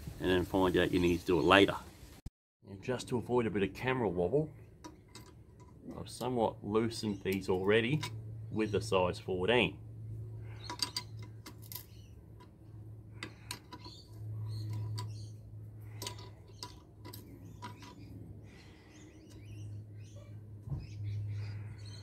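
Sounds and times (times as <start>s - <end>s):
steady low hum: 2.7s - 22.0s
spanner and nuts clinking: 4.8s - 6.4s, 10.5s - 19.6s.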